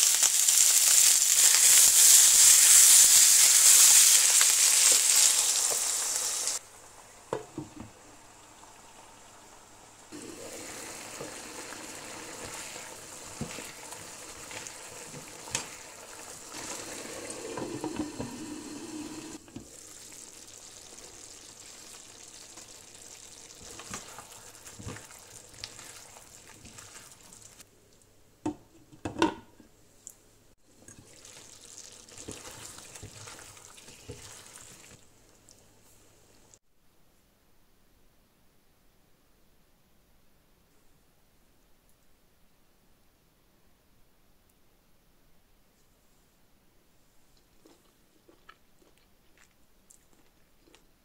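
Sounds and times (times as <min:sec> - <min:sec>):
food sizzling in a wok: 0:00.0 - 0:27.6, 0:30.7 - 0:35.4.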